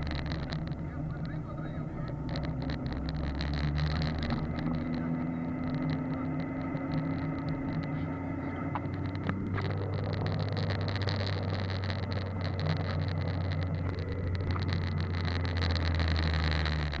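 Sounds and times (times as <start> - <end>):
grit ticking against car: 0.0 - 17.0
low engine drone: 0.0 - 17.0
road noise on gravel: 0.0 - 17.0.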